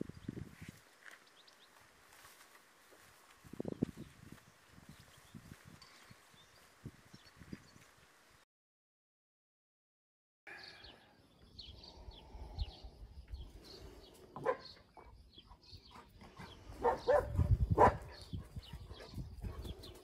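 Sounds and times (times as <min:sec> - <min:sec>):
small birds chirping: 0:00.0 - 0:02.4, 0:03.6 - 0:08.1, 0:10.5 - 0:20.0
dog barking: 0:14.4 - 0:14.8, 0:16.8 - 0:18.2.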